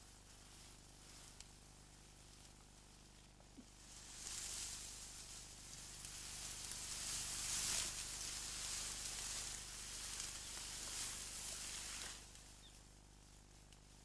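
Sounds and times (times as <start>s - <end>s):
tall grass swishing: 3.8s - 13.6s.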